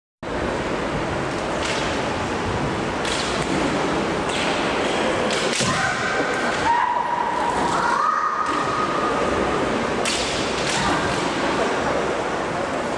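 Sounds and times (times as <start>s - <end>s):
sports hall hubbub: 0.2s - 12.9s
sharp cracks of bamboo swords: 3.0s - 3.6s, 5.2s - 6.6s, 10.0s - 11.3s.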